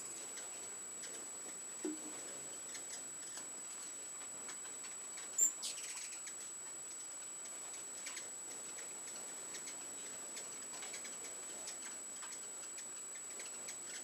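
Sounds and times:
buzzy bird chatter: 0:04.5 - 0:14.0
hummingbird high ticks: 0:04.5 - 0:14.0.

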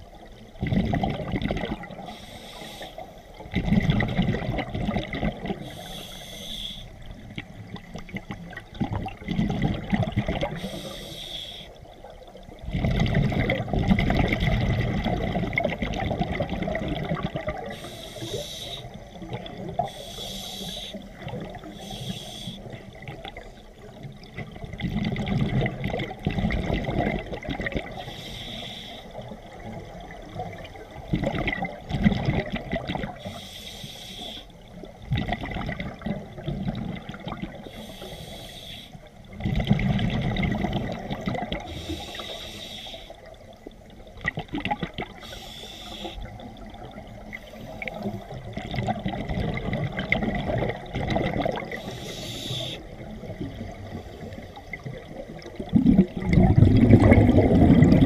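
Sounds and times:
bubbling exhaled air: 0:00.6 - 0:06.9, 0:07.8 - 0:11.6, 0:12.6 - 0:23.4, 0:24.6 - 0:29.3, 0:39.3 - 0:42.9, 0:44.2 - 0:58.0
regulator hissing inhalations: 0:02.1 - 0:03.2, 0:05.6 - 0:06.9, 0:10.6 - 0:11.8, 0:17.7 - 0:19.0, 0:19.8 - 0:21.1, 0:21.7 - 0:22.8, 0:28.0 - 0:29.1, 0:33.2 - 0:34.5, 0:37.7 - 0:39.1, 0:41.7 - 0:43.2, 0:45.2 - 0:46.4, 0:51.8 - 0:52.9.

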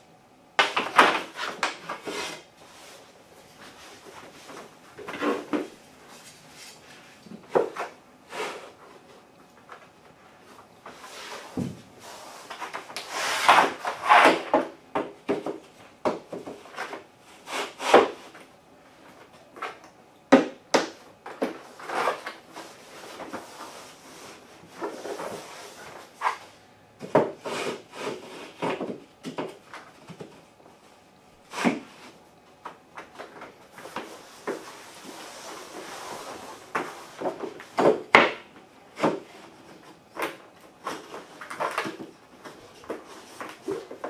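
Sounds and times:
boards scraping over underlayment: 0:10.9 - 0:14.7, 0:33.8 - 0:37.9.

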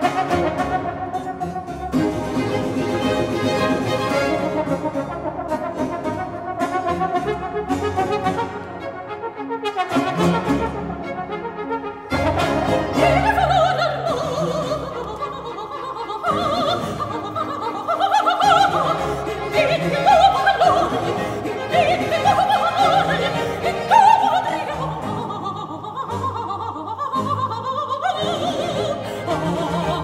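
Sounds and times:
orchestra playing: 0:00.0 - 0:27.5, 0:28.1 - 0:30.0
soprano singing opera aria: 0:12.1 - 0:30.0.

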